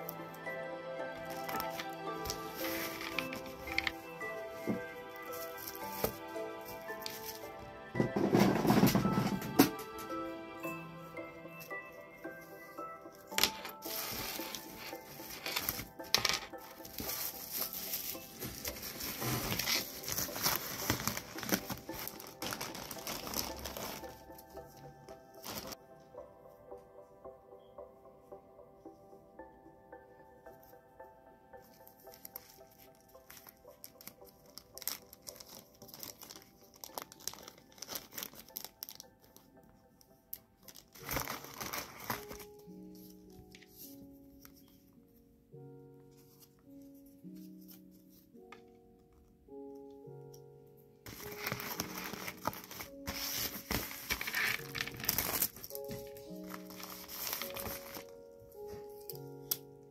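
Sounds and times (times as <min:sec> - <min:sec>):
background music: 0:00.0 - 0:59.9
plastic packaging crinkling: 0:01.2 - 0:07.6, 0:12.4 - 0:24.8, 0:25.4 - 0:25.8, 0:32.0 - 0:39.5, 0:40.6 - 0:42.6, 0:51.1 - 0:59.7.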